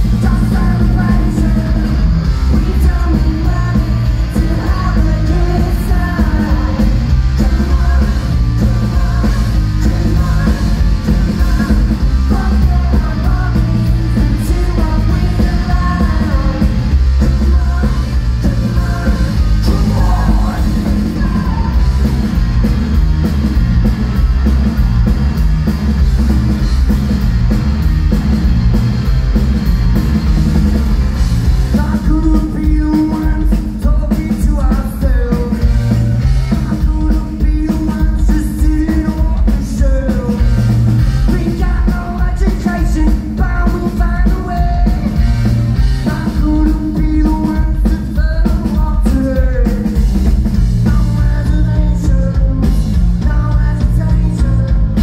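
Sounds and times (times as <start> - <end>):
sung lead vocals: 0.0 - 23.6, 31.5 - 55.0
rock band playing live: 0.0 - 55.0.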